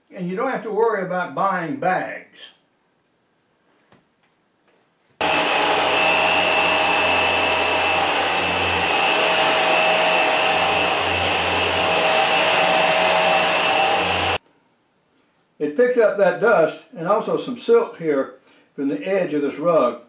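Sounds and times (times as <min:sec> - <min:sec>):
vacuum cleaner running: 0:05.2 - 0:14.4.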